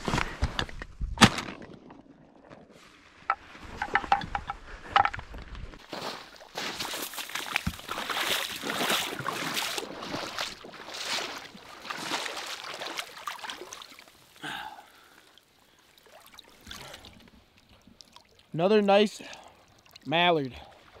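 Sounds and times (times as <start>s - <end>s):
wading through splashing water: 5.8s - 18.5s.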